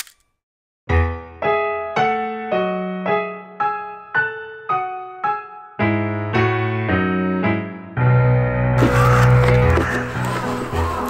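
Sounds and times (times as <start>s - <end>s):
slow keyboard melody: 0.9s - 11.0s.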